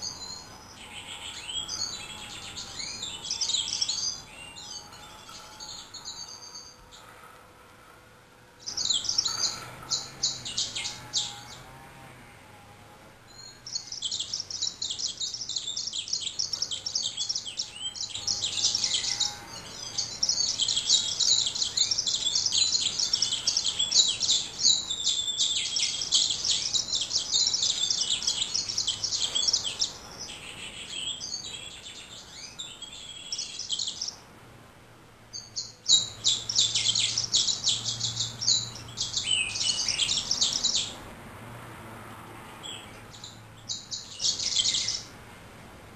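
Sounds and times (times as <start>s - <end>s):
bird singing twittering song: 0.0s - 7.2s, 8.6s - 12.1s, 13.3s - 34.2s, 35.3s - 41.0s, 42.6s - 45.1s.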